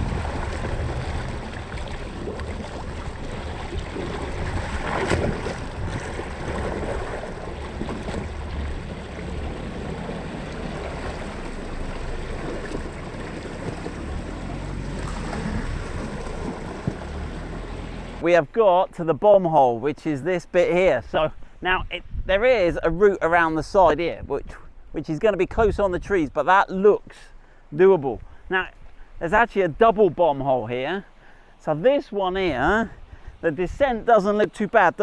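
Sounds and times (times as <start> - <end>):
water churning and splashing: 0.0 - 18.2.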